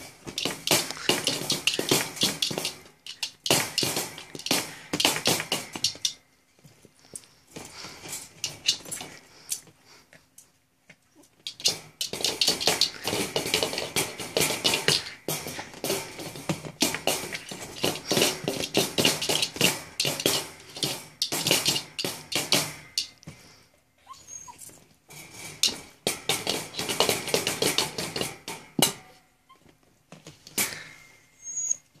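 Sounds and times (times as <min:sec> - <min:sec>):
plastic ball clattering in wire crate: 0:00.0 - 0:06.2, 0:11.4 - 0:23.2, 0:25.1 - 0:29.1.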